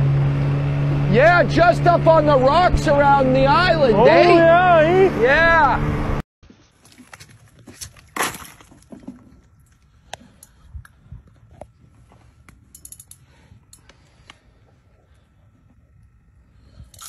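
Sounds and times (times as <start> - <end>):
ice crunching: 6.6 - 9.8.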